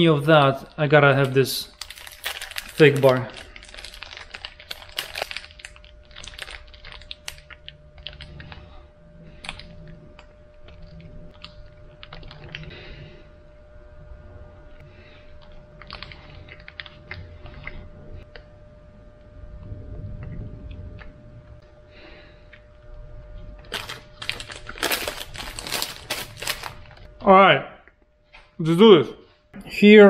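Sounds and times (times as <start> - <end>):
plastic wrapper tearing and crinkling: 0.6 - 8.6, 23.6 - 27.1
person chewing: 3.4 - 13.0, 15.2 - 18.4.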